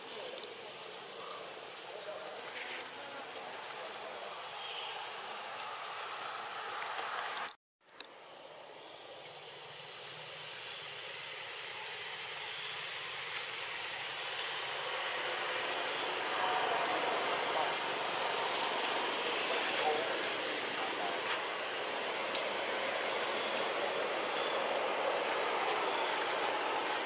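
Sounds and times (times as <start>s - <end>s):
outdoor background hiss: 0.0s - 27.0s.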